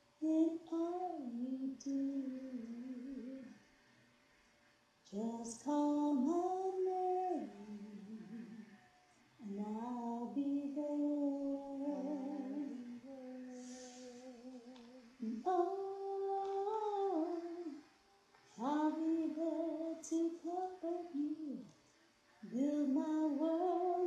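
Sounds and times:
woman humming: 6.2 - 8.8, 9.4 - 17.8.

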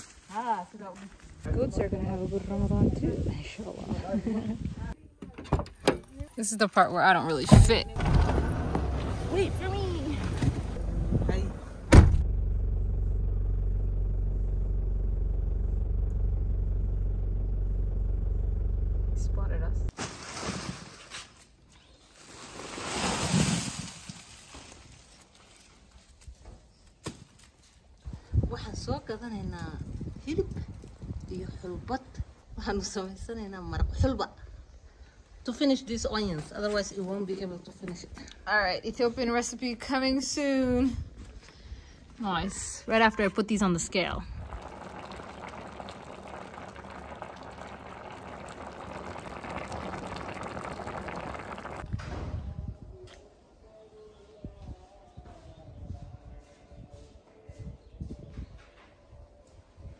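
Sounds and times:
stew boiling and bubbling: 43.8 - 52.0.

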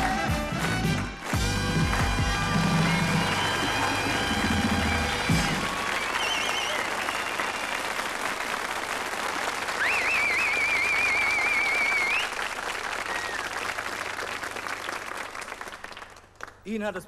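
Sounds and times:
audience applauding: 0.0 - 17.0
person whistling: 6.0 - 7.5.

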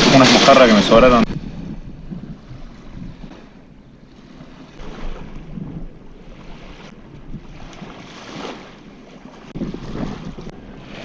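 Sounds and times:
small waves lapping: 0.0 - 11.0
wind gusting against microphone: 0.0 - 11.0.

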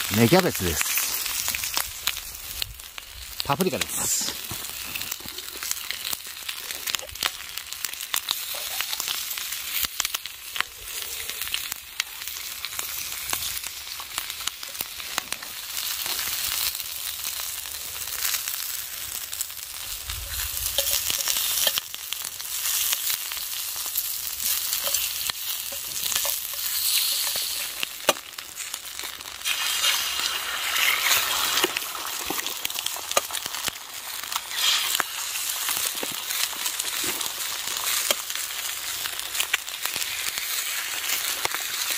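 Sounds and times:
bacon sizzling with pops: 0.0 - 41.9.

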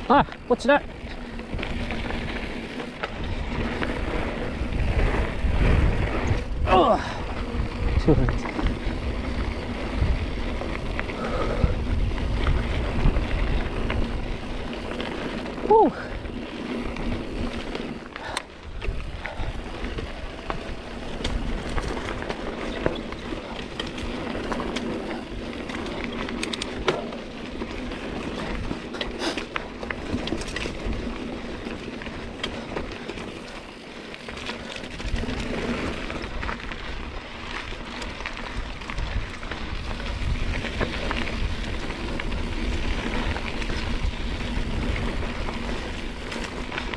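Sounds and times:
bike rattling clicks and knocks: 0.0 - 46.9
bike tyre and drivetrain noise: 0.0 - 46.9.

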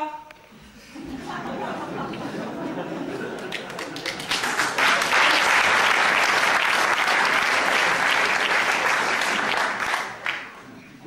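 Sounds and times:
audience applauding: 2.8 - 10.7.

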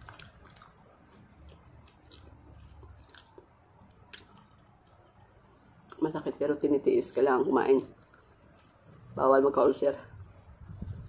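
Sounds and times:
person chewing: 0.0 - 6.0.

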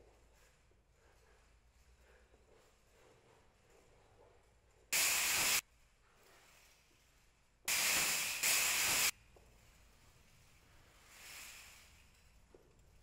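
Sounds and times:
spray-paint can hissing: 5.0 - 5.6, 7.7 - 9.2.

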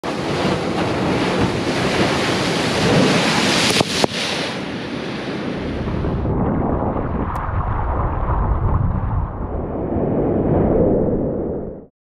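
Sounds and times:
ocean waves breaking on rocks: 0.0 - 6.4
wind buffeting microphone: 0.1 - 11.8.

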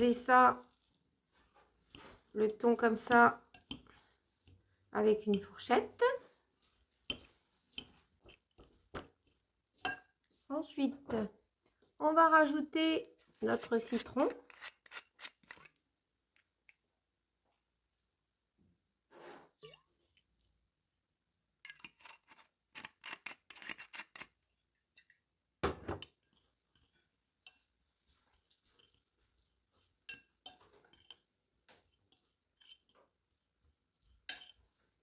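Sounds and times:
fork scraping glass bowl: 13.8 - 15.7, 30.0 - 33.0, 34.3 - 34.6.

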